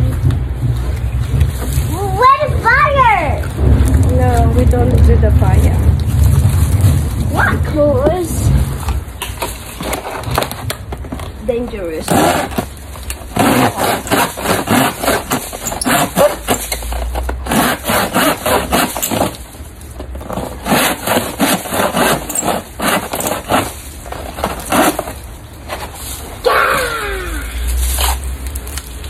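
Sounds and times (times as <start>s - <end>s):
hand saw cutting wood: 12.0s - 12.7s, 13.3s - 19.4s, 20.3s - 25.2s.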